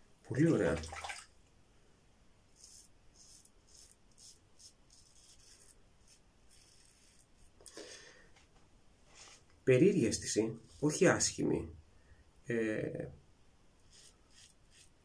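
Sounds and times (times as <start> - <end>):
faint razor scraping stubble: 2.6 - 7.8, 13.8 - 15.0.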